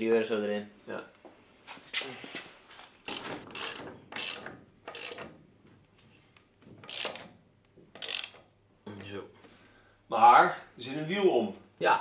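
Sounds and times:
ratchet wrench clicking: 3.1s - 5.3s, 6.8s - 7.3s, 8.0s - 8.4s.

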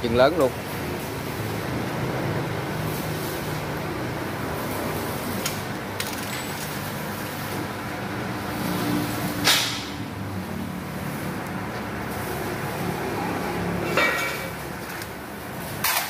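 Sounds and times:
workshop background noise: 0.0s - 16.0s
metal parts clinking: 6.0s - 6.8s.

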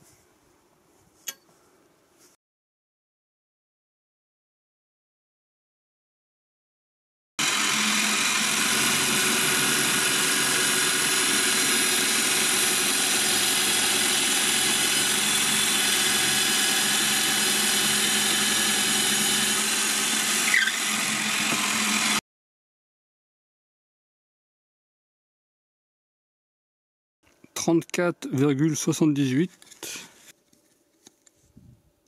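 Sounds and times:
drill press boring into wood: 7.4s - 22.2s
brief squeak: 20.5s - 20.8s.

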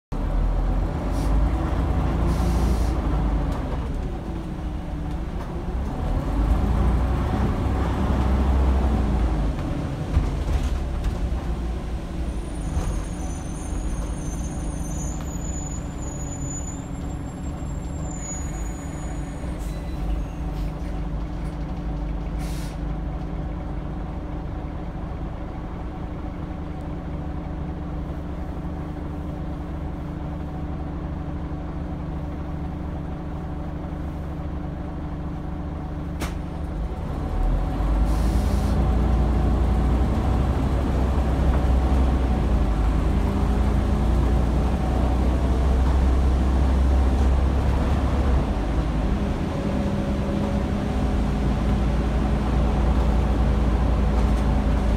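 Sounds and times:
bus diesel engine: 0.1s - 54.9s
air brake hisses: 2.3s - 3.0s, 22.4s - 22.9s, 38.0s - 38.8s.

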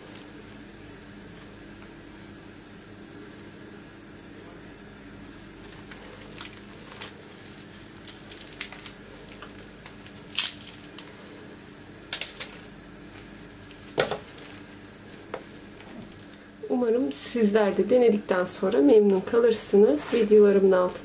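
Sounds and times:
pastry crust crackling: 4.8s - 16.6s.

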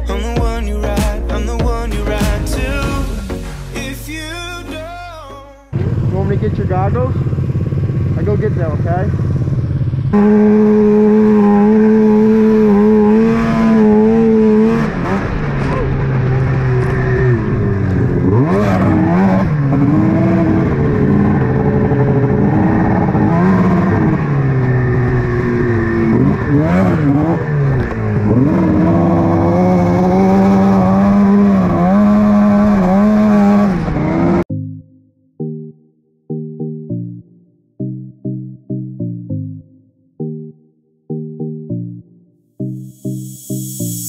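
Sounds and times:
snowmobile engine running: 5.8s - 34.4s.

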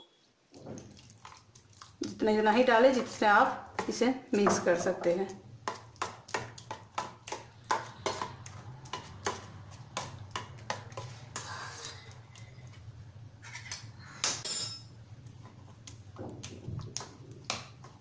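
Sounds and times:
metal spoon clinking in bowl: 14.4s - 14.9s.

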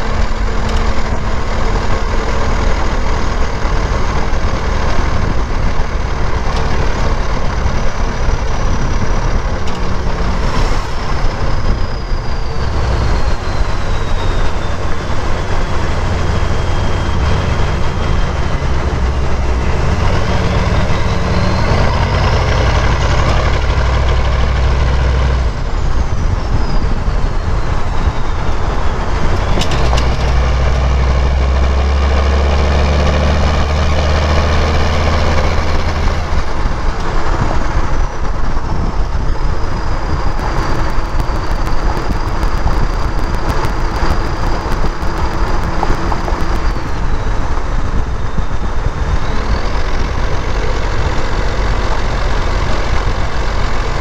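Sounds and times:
diesel truck exhaust drone: 0.0s - 54.0s
turbocharger whistle: 7.1s - 36.5s.

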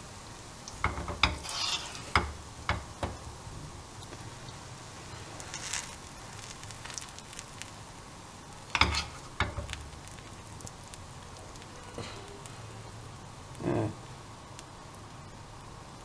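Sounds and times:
bread sizzling in a pan: 0.0s - 16.0s
spatula knocking and scraping: 0.8s - 3.2s, 8.8s - 9.8s.

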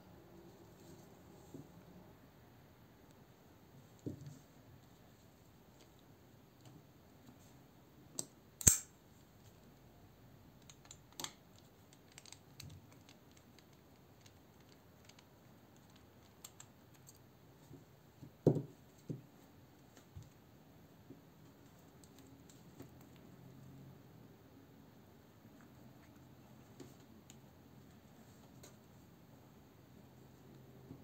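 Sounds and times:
folding knife handling clicks: 8.2s - 8.9s
sharp metallic click: 8.6s - 8.9s.

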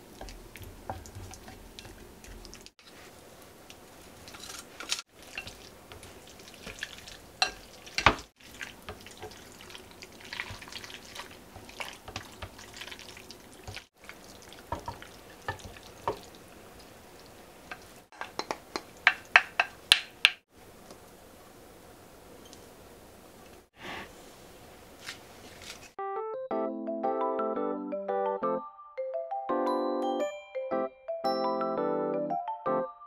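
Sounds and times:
wet squishing of noodles: 0.0s - 19.0s.

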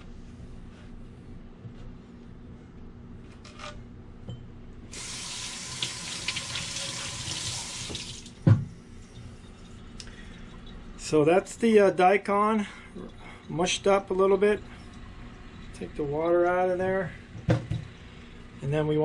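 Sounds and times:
faucet water on metal grater: 5.0s - 8.3s.

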